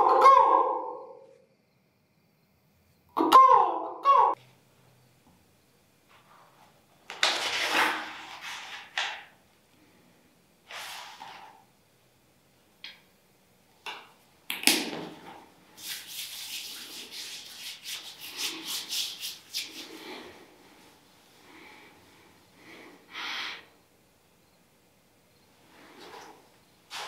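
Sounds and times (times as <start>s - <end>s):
scrapes: 6.1s - 9.2s, 25.7s - 27.0s
hands rustling and rubbing: 15.8s - 21.0s, 25.8s - 27.0s.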